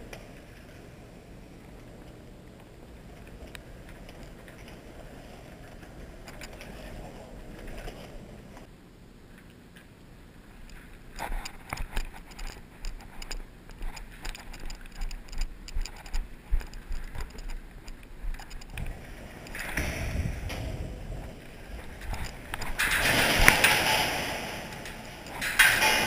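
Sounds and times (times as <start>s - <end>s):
gear rustling: 10.6s - 26.0s.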